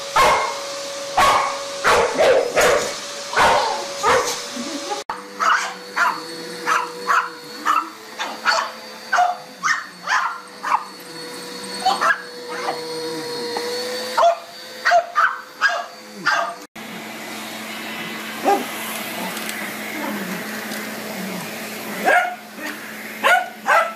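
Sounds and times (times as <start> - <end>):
vacuum cleaner low hum: 0.0 - 23.9
vacuum cleaner motor whine: 0.0 - 23.9
dog barking: 0.2 - 0.6, 1.2 - 4.4, 5.4 - 10.8, 11.9 - 12.8, 14.2 - 16.6, 18.4 - 18.7, 22.0 - 22.4, 23.2 - 23.9.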